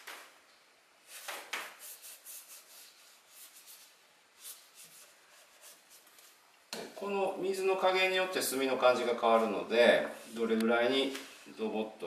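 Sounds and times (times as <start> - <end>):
ink brush swishing on paper: 1.0 - 6.4.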